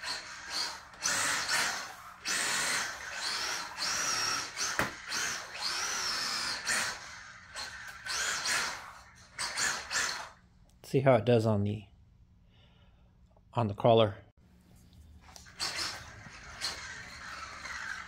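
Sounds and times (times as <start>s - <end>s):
electric motor whining: 0.0s - 10.4s, 15.3s - 18.0s.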